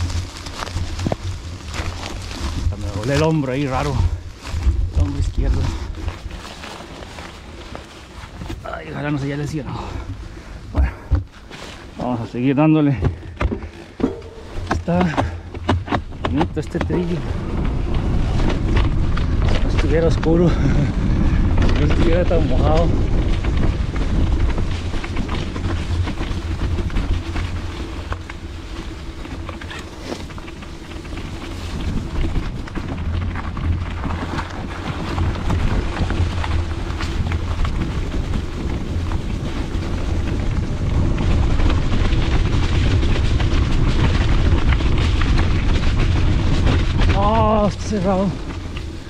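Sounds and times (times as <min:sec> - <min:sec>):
bike clicks and rattles: 0:00.0 - 0:49.0
tyres rumbling on trail: 0:00.0 - 0:49.0
wind on microphone: 0:13.1 - 0:49.0.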